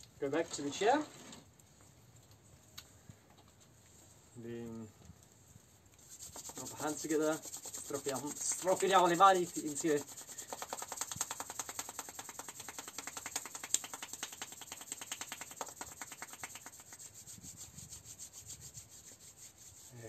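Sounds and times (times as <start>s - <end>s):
palms rubbing together: 5.9s - 20.0s.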